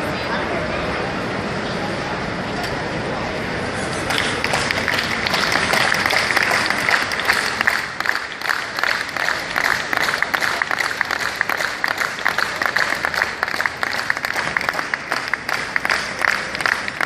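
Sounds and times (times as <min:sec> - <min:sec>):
audience applauding: 0:04.0 - 0:17.0.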